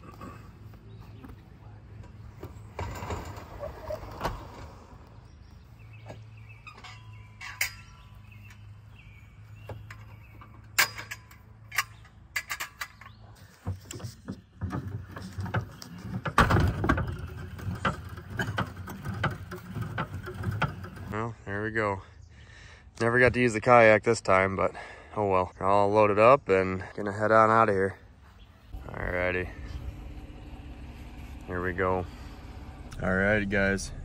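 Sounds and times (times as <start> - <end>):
metallic clicks and clanks of poles: 0.0 - 5.1, 6.0 - 8.8, 9.6 - 21.3
crank rattling: 9.7 - 21.2, 28.7 - 34.0.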